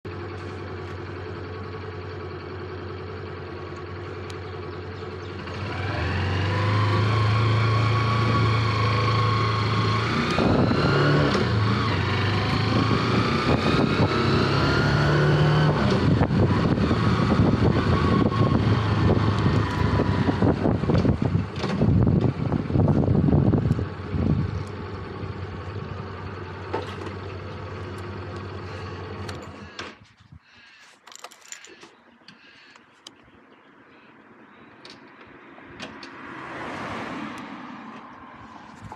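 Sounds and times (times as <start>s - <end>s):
motorcycle engine accelerating: 0.1s - 30.0s
wind buffeting microphone: 16.0s - 24.7s.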